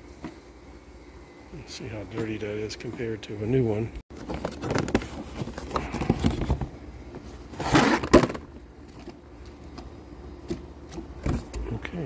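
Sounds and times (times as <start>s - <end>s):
paper filter rustling scrape: 7.5s - 8.3s.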